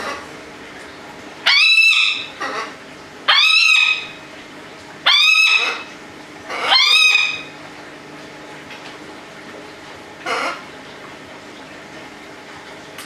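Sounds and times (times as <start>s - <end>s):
parrot squawking: 1.4s - 4.2s, 5.0s - 5.9s, 6.5s - 7.6s, 10.2s - 10.7s.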